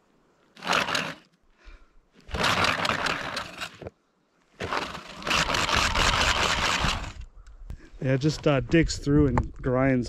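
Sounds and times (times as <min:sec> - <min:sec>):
motorized tread grinding snow and ice: 0:00.6 - 0:01.3, 0:02.2 - 0:04.0, 0:04.6 - 0:07.2.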